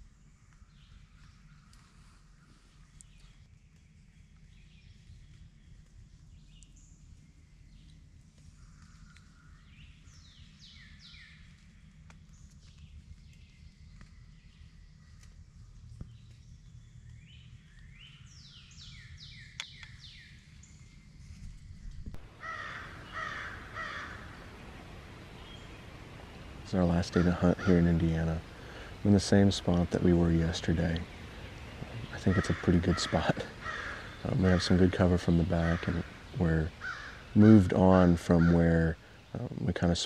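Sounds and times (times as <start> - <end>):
songbird singing: 0.0 - 40.0
low steady rumble: 20.4 - 40.0
crows cawing: 22.3 - 25.0, 26.5 - 29.1, 31.1 - 39.3.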